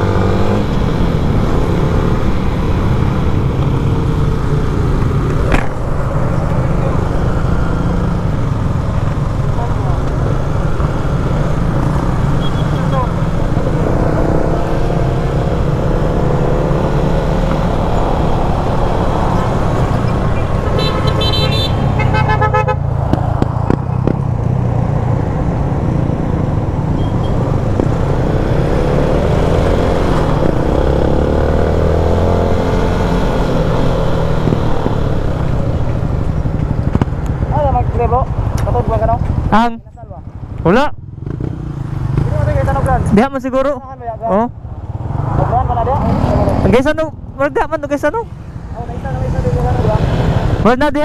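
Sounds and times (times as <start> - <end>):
road and wind noise: 0.0 - 51.0
vehicle horn short toots: 20.7 - 22.8.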